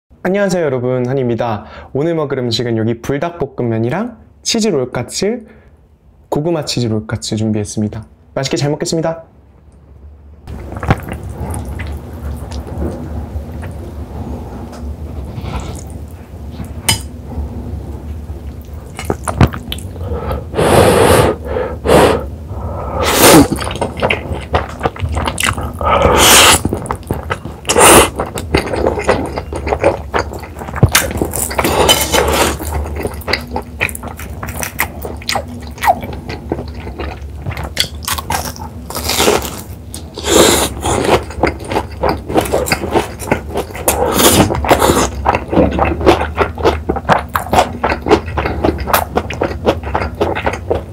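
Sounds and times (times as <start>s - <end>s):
wet chewing and mouth clicks: 10.5s - 13.8s, 18.5s - 20.0s, 23.1s - 50.9s
noodle slurping: 19.0s - 30.8s.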